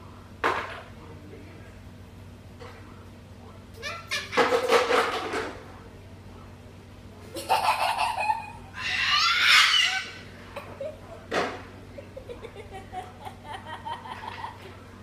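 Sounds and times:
cockatoo calling: 0:08.4 - 0:10.4.

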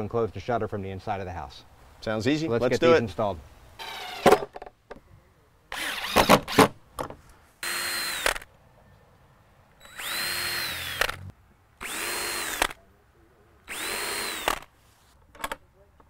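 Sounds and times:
cordless drill whining: 0:05.8 - 0:06.6, 0:07.6 - 0:08.5, 0:09.8 - 0:11.2, 0:11.8 - 0:12.8, 0:13.7 - 0:14.7.

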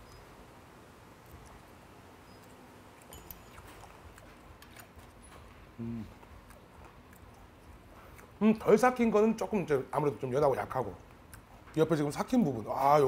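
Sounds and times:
quiet chewing: 0:01.2 - 0:08.6, 0:10.9 - 0:11.8
person humming: 0:05.8 - 0:06.2.

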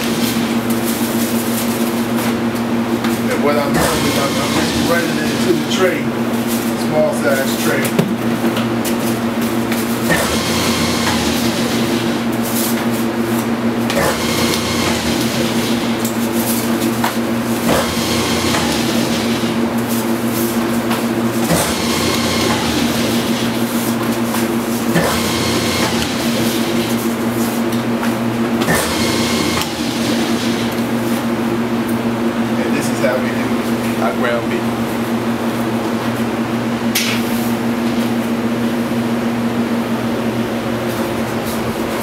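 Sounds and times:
meat grinder motor hum: 0:00.0 - 0:02.7, 0:03.4 - 0:06.0, 0:08.4 - 0:31.4
rattling hissing grinder cycle: 0:00.0 - 0:35.1.

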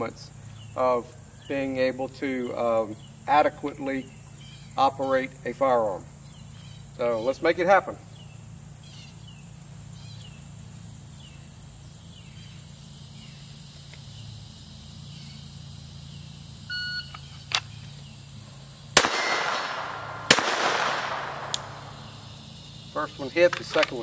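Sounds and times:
pistol shots: 0:19.0 - 0:22.2.

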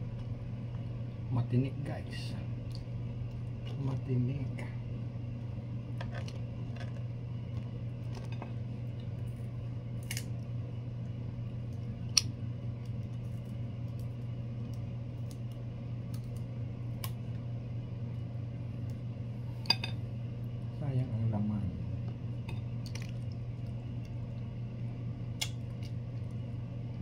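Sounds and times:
steady low hum: 0:00.0 - 0:27.0
prawn shells cracking: 0:10.0 - 0:10.3.

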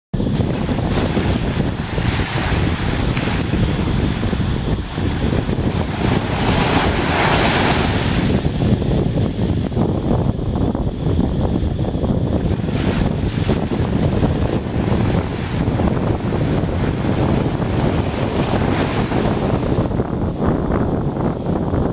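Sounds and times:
wind buffeting microphone: 0:00.1 - 0:21.9
small waves breaking on sand: 0:00.3 - 0:09.7, 0:12.3 - 0:20.3.

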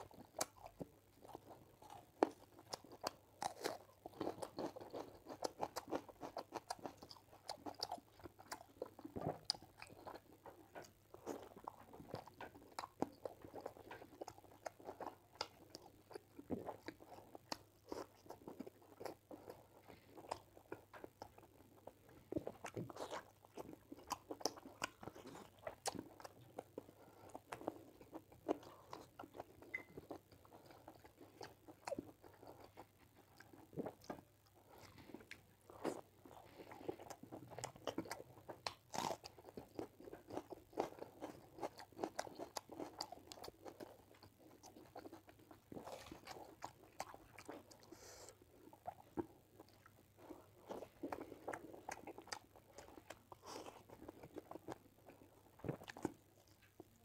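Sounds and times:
chewing and smacking: 0:00.0 - 0:57.0.

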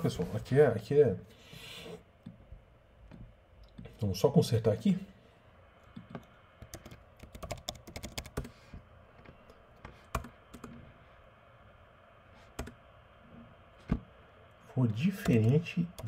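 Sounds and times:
typing on computer keyboard: 0:06.0 - 0:08.6, 0:10.1 - 0:10.8.

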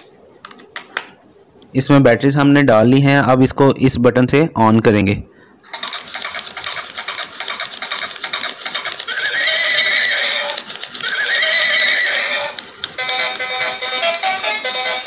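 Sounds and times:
toy mechanism clattering: 0:05.7 - 0:15.0
recorded horse whinny: 0:09.1 - 0:12.6.

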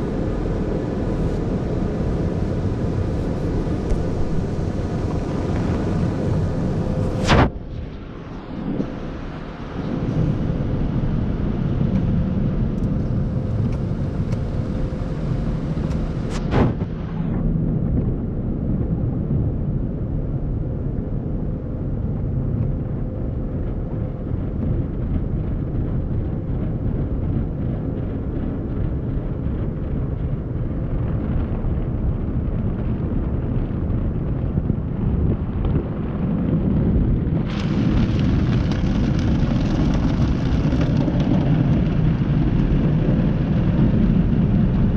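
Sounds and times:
water sheeting over car: 0:37.5 - 0:42.8.

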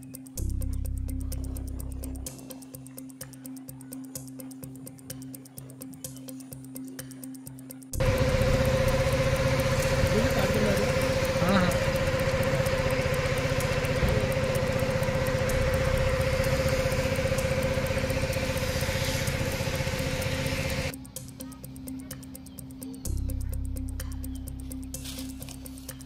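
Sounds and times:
constant whine: 0:07.9 - 0:26.0
engine running: 0:08.0 - 0:21.0.

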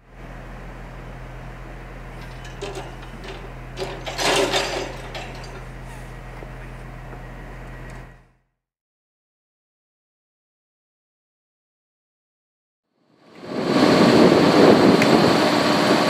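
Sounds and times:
low hum: 0:00.0 - 0:08.3
signal arm clattering and creaking: 0:02.1 - 0:07.2.

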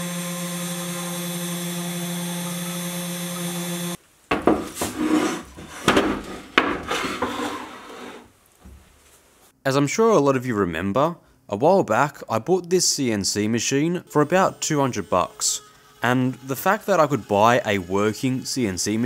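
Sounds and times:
machine knocking and scraping on wood: 0:04.3 - 0:07.7
spindle motor whine: 0:14.0 - 0:19.0.

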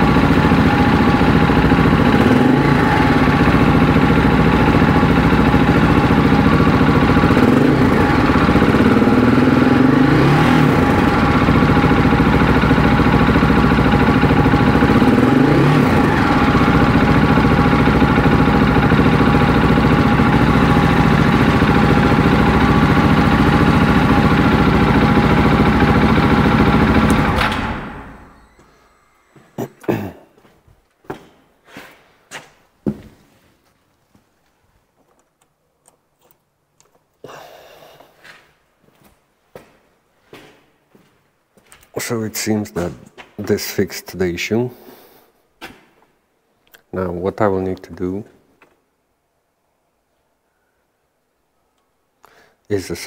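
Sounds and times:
motorcycle engine idling: 0:00.0 - 0:28.6
engine throttle blips: 0:00.0 - 0:29.6.

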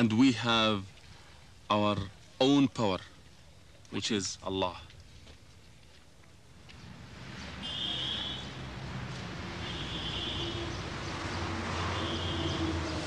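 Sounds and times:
vehicle engine humming: 0:06.4 - 0:13.0.

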